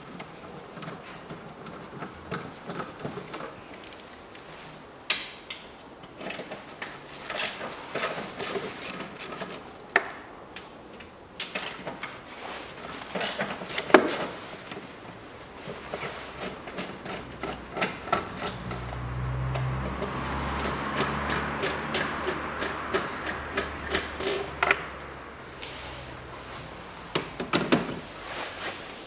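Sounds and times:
hand tool and plastic parts clicking: 5.1s - 10.1s, 12.8s - 14.9s, 15.6s - 25.1s.

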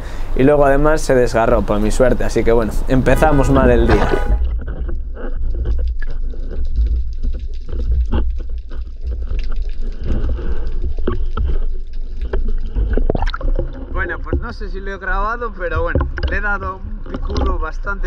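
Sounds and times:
water sloshing over camera: 1.4s - 18.0s
crackly clicks: 4.4s - 14.5s.

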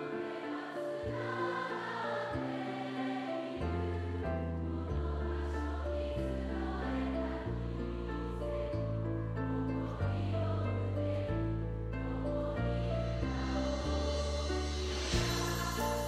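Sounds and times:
choir singing: 0.0s - 16.0s.

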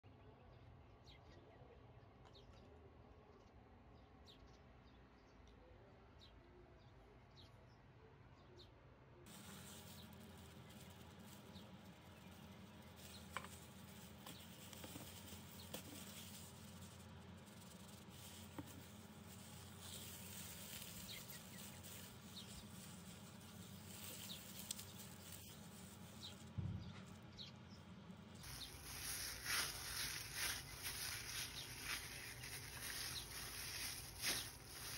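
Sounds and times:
faint hiss: 9.3s - 26.6s
plastic glove rustle: 9.3s - 27.3s, 28.4s - 34.9s
squishing minced meat: 28.4s - 34.9s.

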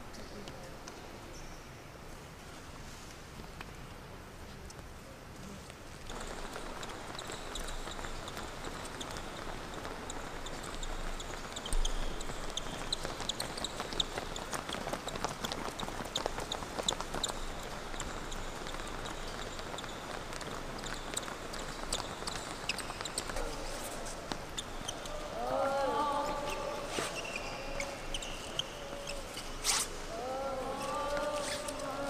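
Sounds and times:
short high sneaker squeaks: 10.1s - 15.3s, 20.8s - 25.2s, 26.9s - 30.0s.

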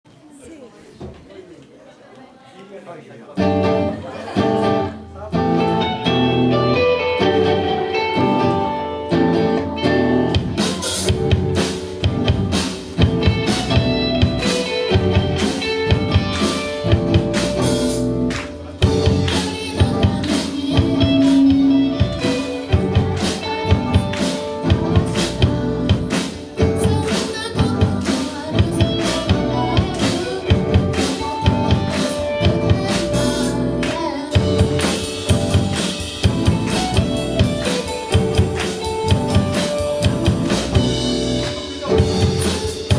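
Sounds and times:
electric guitars: 3.4s - 42.9s
live rock band: 3.4s - 42.9s
drum kit beat: 5.4s - 42.9s
person singing: 18.8s - 39.8s.

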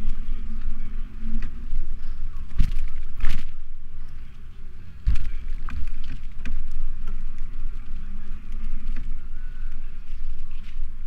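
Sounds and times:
bicycle knocks and rattles: 0.0s - 3.8s, 5.0s - 9.2s
low wind rumble: 0.0s - 11.0s.

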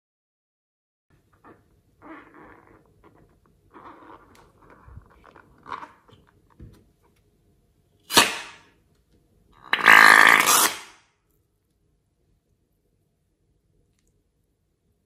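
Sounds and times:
rubber balloon squeaking and rubbing: 1.2s - 6.2s, 9.6s - 11.0s.

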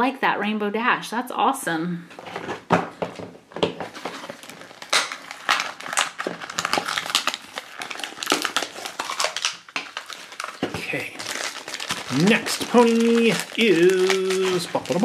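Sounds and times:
packaging crinkling and crackling: 3.1s - 15.0s.

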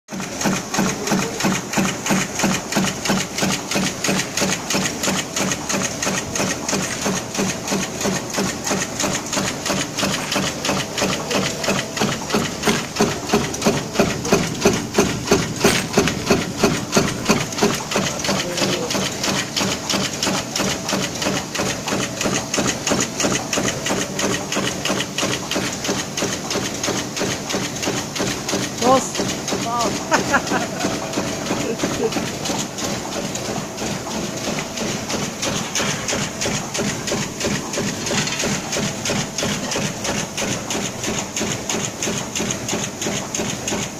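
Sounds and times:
punch press clattering: 0.1s - 29.6s.

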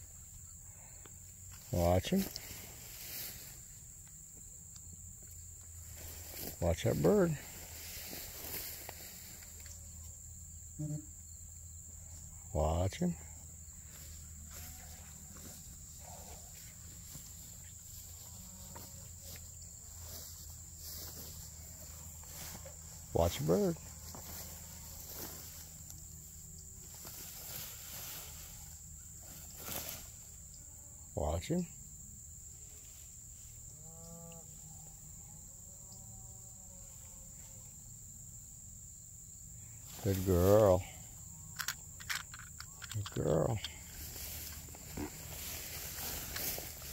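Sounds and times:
insects chirping: 0.0s - 46.9s
faint rustles: 0.7s - 4.2s, 5.2s - 10.2s, 13.2s - 30.4s, 39.6s - 46.9s.

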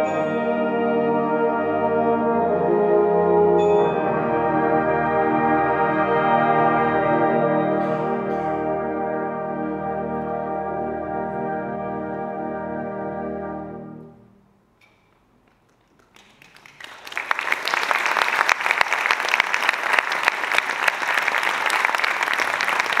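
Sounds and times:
audience applause: 15.8s - 23.0s.

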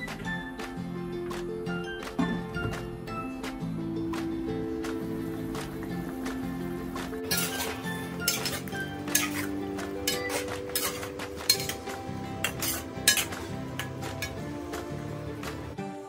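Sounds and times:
metal spoon scraping a pan: 7.3s - 14.4s.

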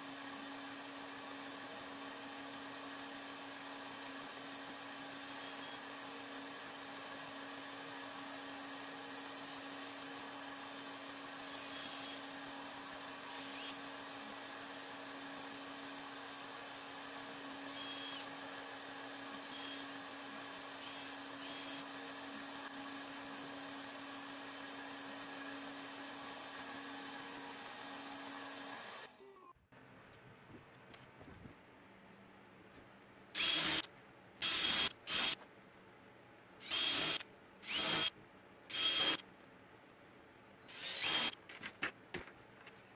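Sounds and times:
electric motor hum: 33.4s - 33.8s, 36.6s - 38.1s, 38.7s - 39.2s, 40.7s - 41.4s.

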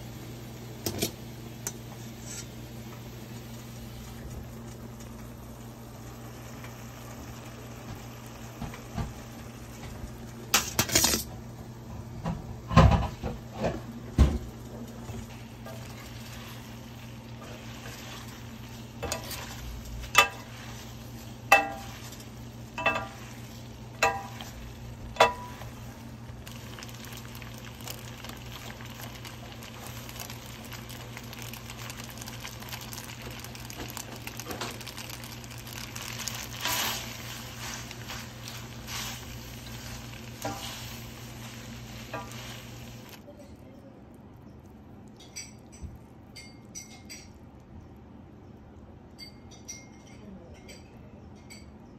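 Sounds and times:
spaghetti sizzling in sauce: 0.0s - 10.8s, 13.2s - 43.3s
tongs clinking against pan: 19.0s - 20.5s, 21.5s - 24.6s, 25.2s - 25.6s, 49.2s - 51.7s.

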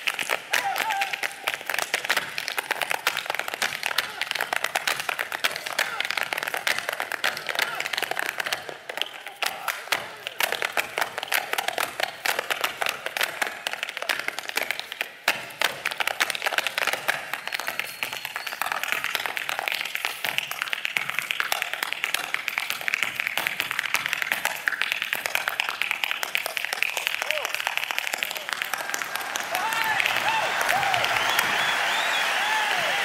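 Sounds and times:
audience applause and cheering: 0.0s - 14.9s, 23.8s - 33.0s
tap shoes on stage floor: 0.0s - 33.0s.

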